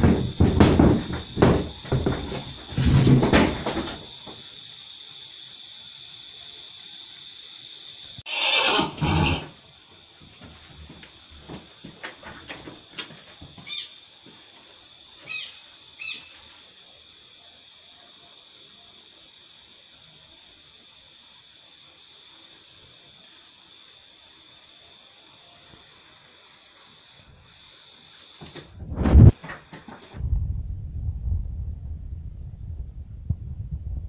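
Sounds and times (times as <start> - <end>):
hooves knocking on wooden boards: 0.0 - 4.4, 10.3 - 13.8
crickets chirping: 0.0 - 34.0
pony squealing: 8.3 - 9.6.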